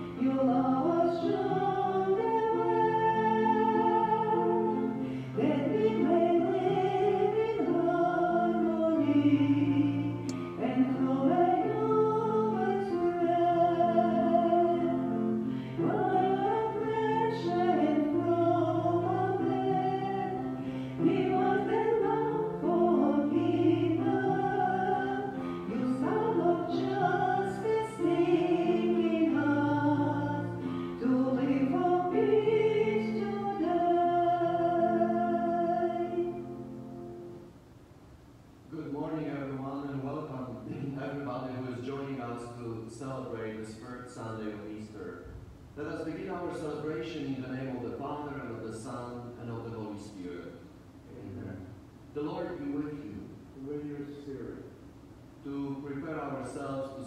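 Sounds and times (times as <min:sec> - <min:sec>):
people singing a hymn: 0:00.0 - 0:36.6.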